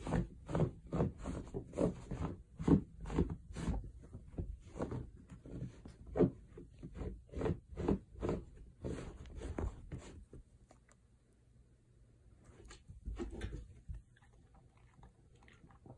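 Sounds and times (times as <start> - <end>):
dog claws scraping fabric mat: 0.0 - 10.4.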